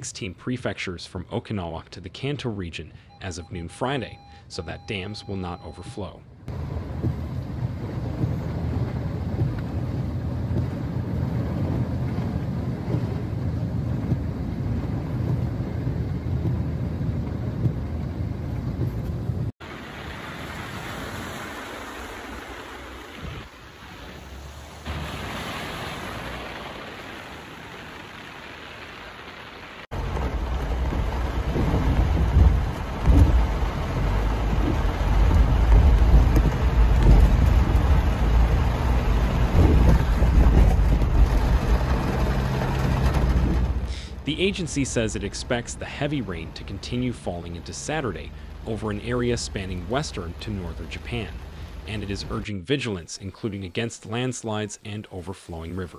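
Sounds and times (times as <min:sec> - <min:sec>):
heavy rain: 0:06.5 - 0:52.5
rushing floodwater: 0:19.6 - 0:54.3
wind buffeting microphone: 0:30.1 - 0:42.4.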